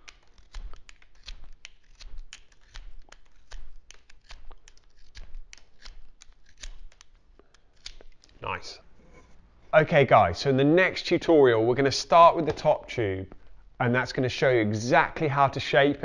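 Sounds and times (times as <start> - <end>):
knife shaving pencil wood: 0.0 - 8.3.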